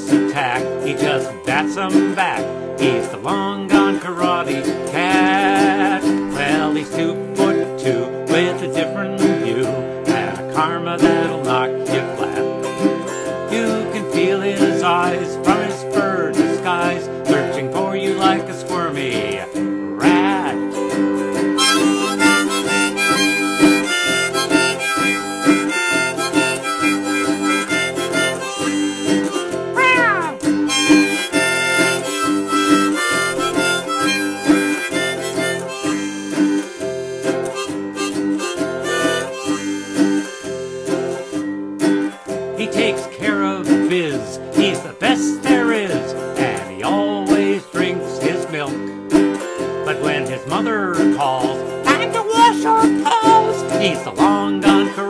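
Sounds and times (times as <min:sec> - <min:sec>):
person singing: 0:00.0 - 0:12.5, 0:13.5 - 0:20.7, 0:29.8 - 0:30.5, 0:42.6 - 0:48.9, 0:49.9 - 0:55.0
autoharp strummed: 0:00.0 - 0:55.0
harmonica melody: 0:21.6 - 0:41.9, 0:51.9 - 0:54.3.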